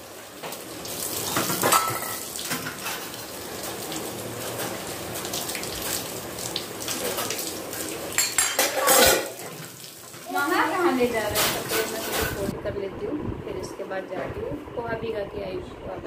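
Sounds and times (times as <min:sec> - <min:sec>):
dishes being washed: 0:00.0 - 0:12.5
tap water running into sink: 0:00.0 - 0:12.5.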